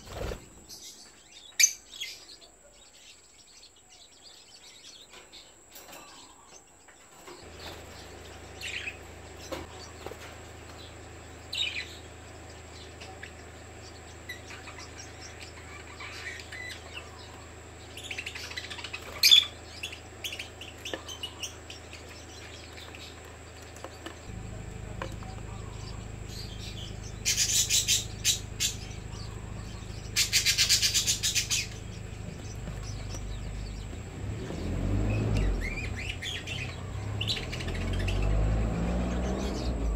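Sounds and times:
lovebirds chirping: 0.0s - 39.9s
rapid rattling bird calls: 0.0s - 39.9s
steady low hum: 5.0s - 39.9s.

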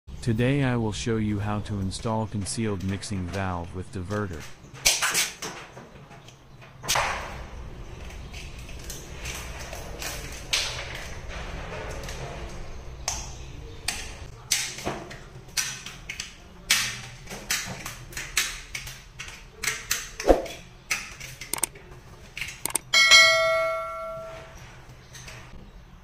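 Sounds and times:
snips cutting plastic: 20.9s - 21.7s.

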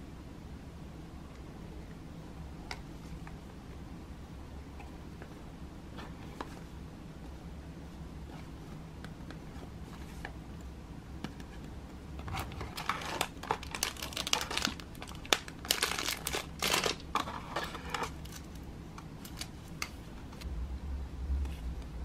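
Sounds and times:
low steady hum: 0.0s - 22.0s
cardboard packaging rustling: 12.2s - 19.8s
plastic bag crinkling: 12.4s - 18.6s.

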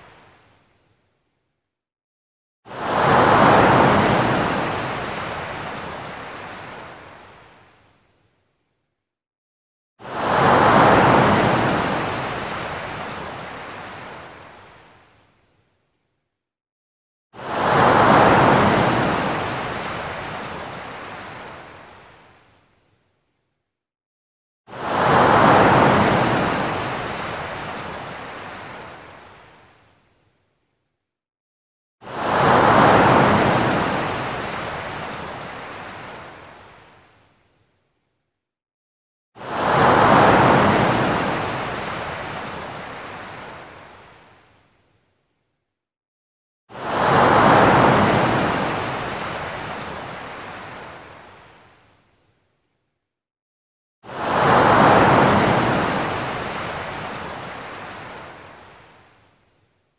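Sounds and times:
ocean wave crashing on beach: 2.7s - 6.9s, 10.0s - 14.2s, 17.4s - 21.6s, 24.7s - 29.0s, 32.0s - 36.4s, 39.4s - 43.7s, 46.7s - 51.1s, 54.1s - 58.5s.

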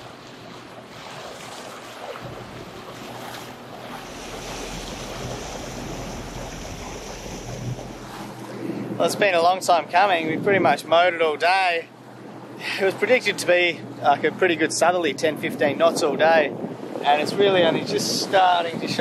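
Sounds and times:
water rushing against hull: 0.0s - 19.0s
wind on microphone: 2.1s - 9.0s, 15.6s - 19.0s.

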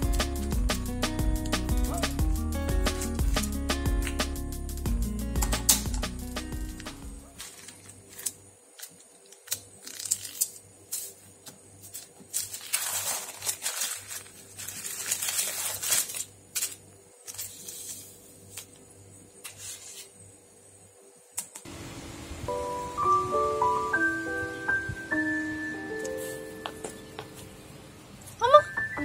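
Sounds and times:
plastic bag crinkling: 7.3s - 11.2s, 11.8s - 18.1s.

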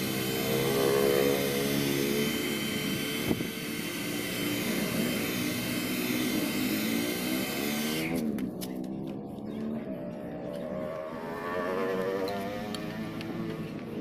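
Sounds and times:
hair dryer running: 0.0s - 8.2s.

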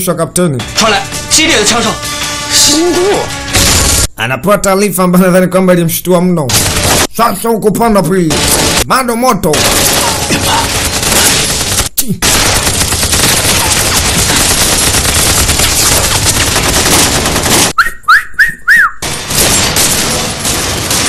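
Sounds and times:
rifles and machine guns firing: 6.5s - 7.1s, 8.3s - 8.8s, 9.5s - 17.8s, 19.0s - 21.0s
short whistling tones: 17.8s - 19.0s.

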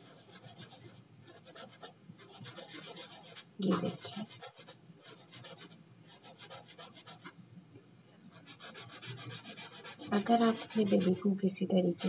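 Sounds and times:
clove rasping on rubbing stone: 8.5s - 11.3s.

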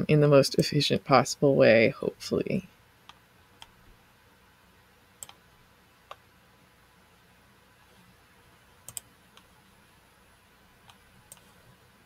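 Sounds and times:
computer mouse clicks: 3.0s - 3.8s, 5.2s - 5.4s, 8.8s - 9.6s, 10.8s - 11.7s.

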